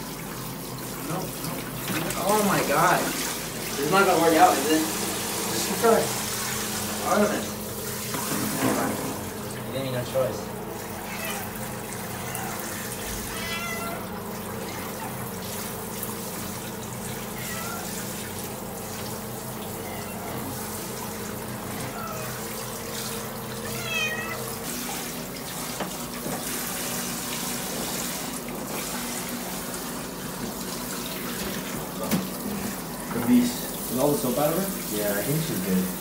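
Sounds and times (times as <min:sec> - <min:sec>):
water spraying from shower head: 0:00.0 - 0:09.4, 0:10.7 - 0:36.0
cat meowing: 0:10.9 - 0:15.2, 0:17.1 - 0:18.0, 0:19.7 - 0:20.5, 0:21.7 - 0:22.5, 0:23.5 - 0:24.6.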